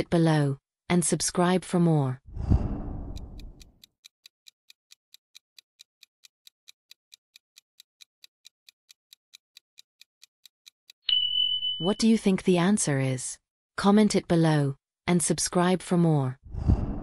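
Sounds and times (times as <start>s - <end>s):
rush of noise: 2.3s - 3.5s
clock ticking quickly: 2.5s - 11.0s.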